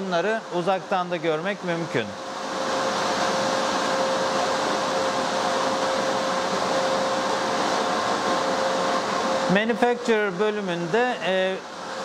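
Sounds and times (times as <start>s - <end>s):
cooling fans rushing air: 0.0s - 12.0s.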